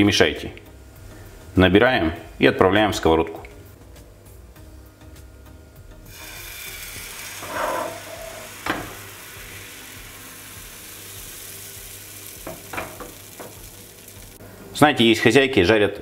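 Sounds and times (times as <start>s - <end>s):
batter sizzling in frying pan: 6.1s - 14.4s.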